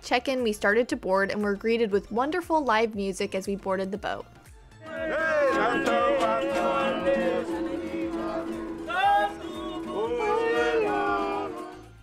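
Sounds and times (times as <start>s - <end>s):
acoustic guitars and ukulele: 4.8s - 11.9s
men singing: 4.8s - 12.0s.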